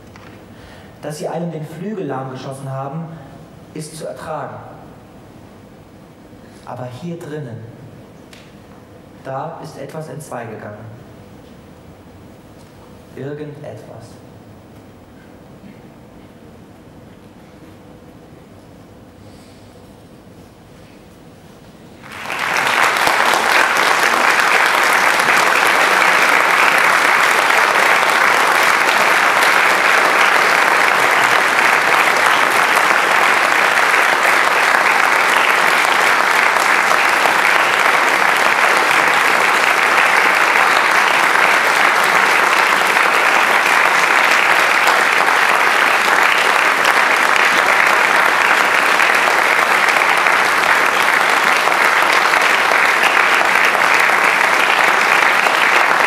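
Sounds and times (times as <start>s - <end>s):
audience applauding: 22.0s - 56.0s.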